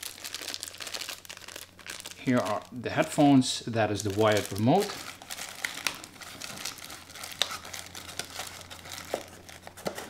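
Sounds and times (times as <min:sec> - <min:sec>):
plastic packaging crinkling: 0:00.0 - 0:10.0
cardboard rustling: 0:04.2 - 0:10.0.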